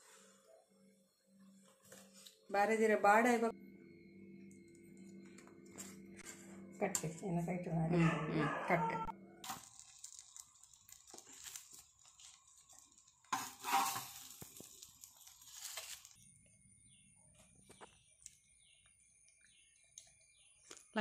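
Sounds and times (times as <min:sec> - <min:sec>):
banana leaf crinkling and rustling: 0:09.4 - 0:16.3.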